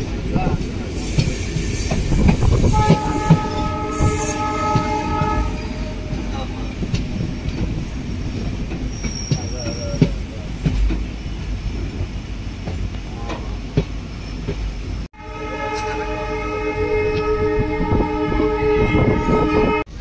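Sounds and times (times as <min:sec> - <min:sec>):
train wheels rumbling: 0:00.0 - 0:20.0.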